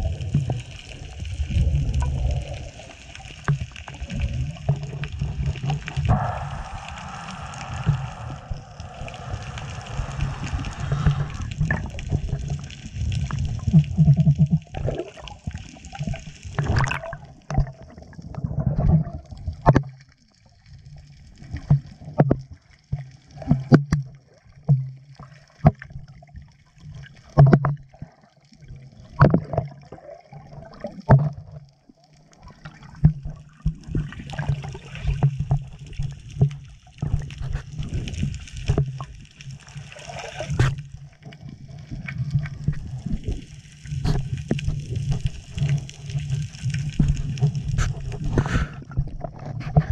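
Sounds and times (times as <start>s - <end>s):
water sloshing underwater: 0.0s - 49.9s
water splashes: 0.0s - 49.9s.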